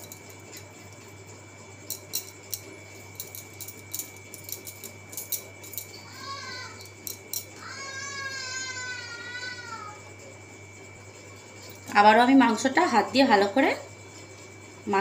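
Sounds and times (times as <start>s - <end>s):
spoon clicking and scraping: 1.9s - 6.0s.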